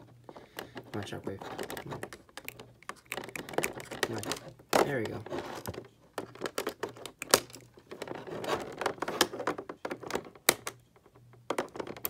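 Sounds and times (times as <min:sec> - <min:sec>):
plastic packaging crinkling: 0:01.0 - 0:09.5.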